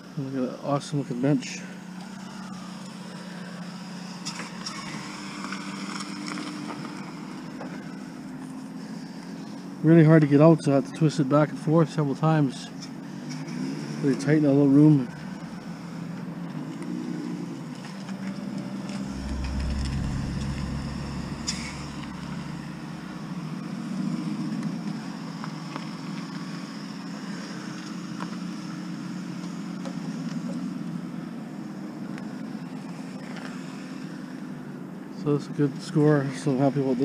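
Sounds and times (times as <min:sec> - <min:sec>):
vehicle engine humming: 0:15.2 - 0:26.0
deep rumble: 0:18.8 - 0:24.0.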